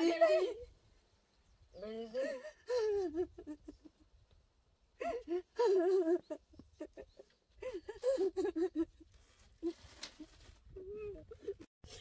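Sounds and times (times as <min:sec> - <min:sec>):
person sobbing: 0:00.0 - 0:00.7, 0:01.8 - 0:03.7, 0:05.0 - 0:06.4, 0:07.6 - 0:09.0.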